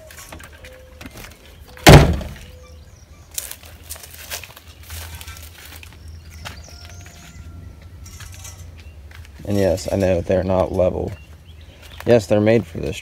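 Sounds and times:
loud thunk: 1.8 - 2.4.

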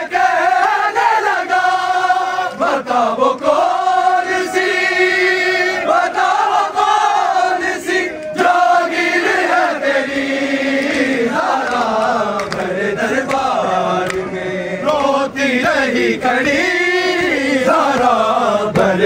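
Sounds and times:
men chanting a lament: 0.0 - 19.0.

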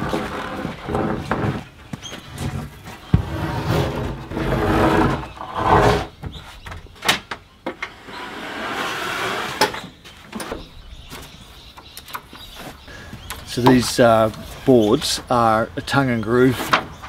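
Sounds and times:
plywood sheet scraping and sliding: 0.0 - 6.6, 7.9 - 10.6, 16.3 - 17.0.

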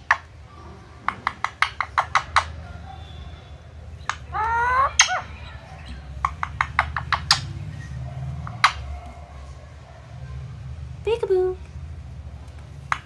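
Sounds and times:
beak clicks and taps: 1.0 - 2.6, 4.0 - 5.2, 5.8 - 7.5, 8.4 - 9.2
parakeet rising call: 4.2 - 5.8.

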